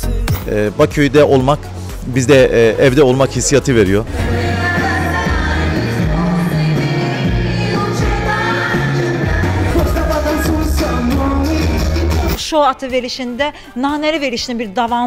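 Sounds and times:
steady bass line: 0.0 - 12.4
person singing: 4.1 - 12.4.

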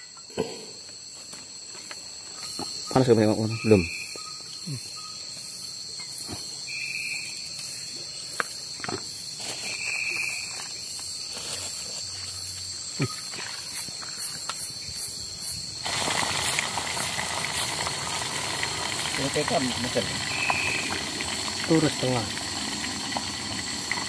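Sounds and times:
crickets trilling: 0.0 - 24.0
fish frying in hot oil: 15.4 - 24.0
high chirps: 19.2 - 21.4.

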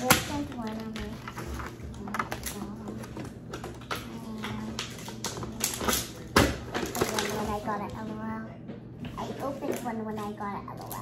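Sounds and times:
packaging clicking and rustling: 0.0 - 7.9.

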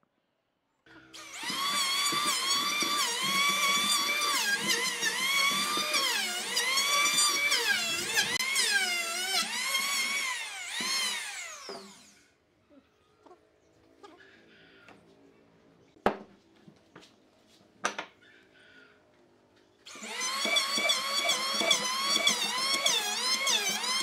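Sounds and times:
electric hand planer whining: 0.9 - 12.2, 19.9 - 24.0.

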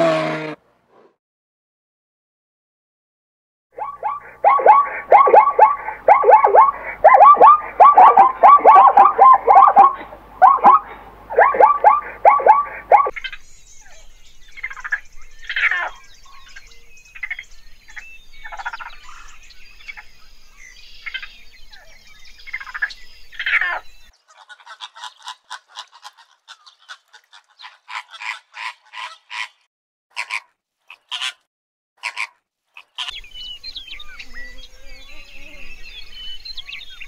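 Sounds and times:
short repeated animal calls: 3.8 - 13.1.

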